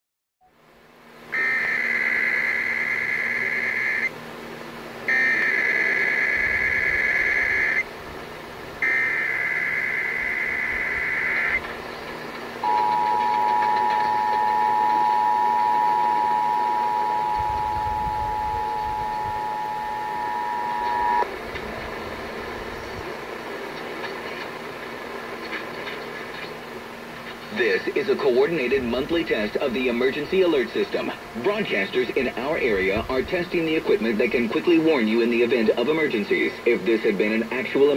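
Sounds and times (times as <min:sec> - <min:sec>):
digital data bursts: 0:01.3 - 0:04.1, 0:05.1 - 0:07.9, 0:08.8 - 0:11.6
radio static: 0:01.3 - 0:04.2, 0:05.0 - 0:08.0, 0:08.8 - 0:37.9
dual-tone alert signal: 0:12.6 - 0:21.2.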